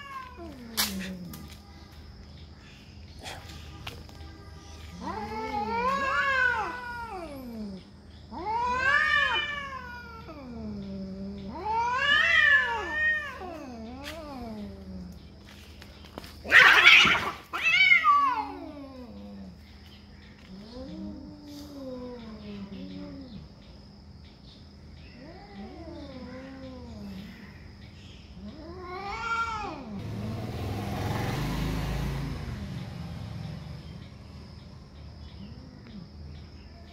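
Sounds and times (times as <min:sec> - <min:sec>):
cats yowling: 0:00.0 - 0:01.5, 0:04.9 - 0:15.2, 0:16.4 - 0:19.6, 0:20.4 - 0:23.6, 0:25.1 - 0:27.6, 0:28.3 - 0:30.0.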